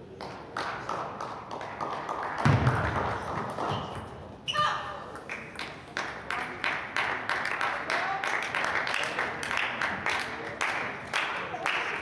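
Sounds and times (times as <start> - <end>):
murmur of voices: 5.8 - 12.0.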